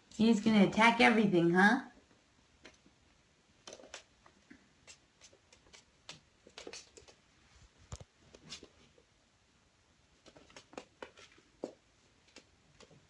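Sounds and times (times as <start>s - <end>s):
kitten paws tapping on wooden floor: 3.6s - 8.9s, 10.2s - 13.0s.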